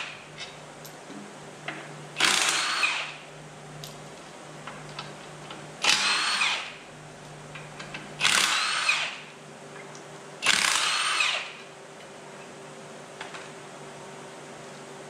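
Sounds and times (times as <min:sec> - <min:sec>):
impact wrench bursts: 0:02.2 - 0:03.2, 0:05.8 - 0:06.8, 0:08.2 - 0:09.2, 0:10.4 - 0:11.6.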